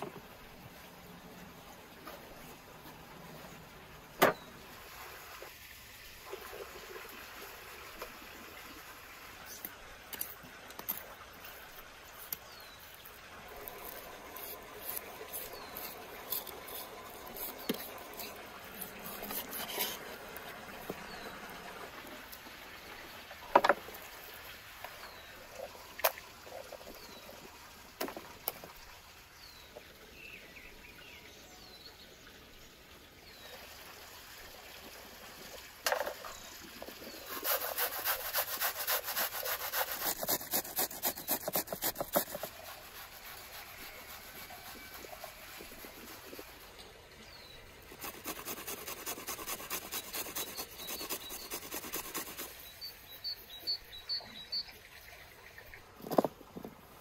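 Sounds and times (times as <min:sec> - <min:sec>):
fast scraping strokes: 0:13.7 - 0:20.2, 0:37.1 - 0:46.7, 0:47.9 - 0:52.7.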